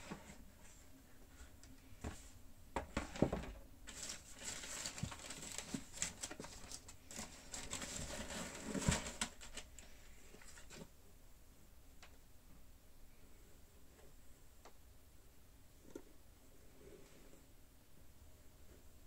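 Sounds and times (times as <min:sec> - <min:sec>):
tissue paper crinkling: 0:03.8 - 0:10.9.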